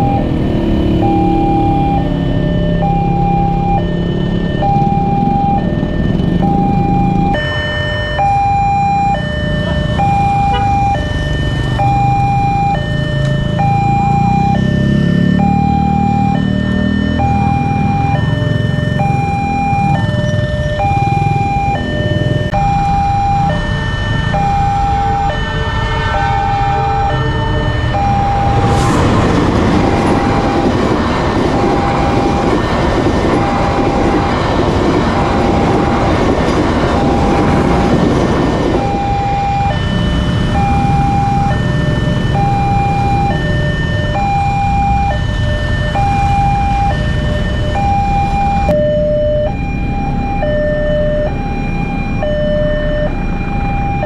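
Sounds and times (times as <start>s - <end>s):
motorcycles and cars idling: 0.0s - 25.5s, 26.4s - 54.0s
train wheels on rails: 28.1s - 39.0s.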